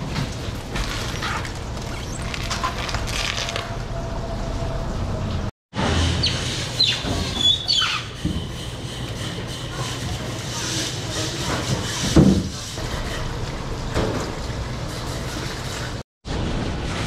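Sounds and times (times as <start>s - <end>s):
workroom background noise: 0.0s - 17.0s
short high squeaks: 6.2s - 8.7s.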